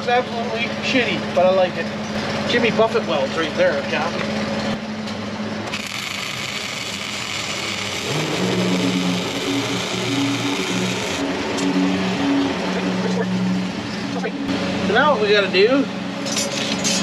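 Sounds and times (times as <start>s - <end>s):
welder arc crackling: 5.7s - 11.7s
low hum changing pitch: 5.7s - 16.3s.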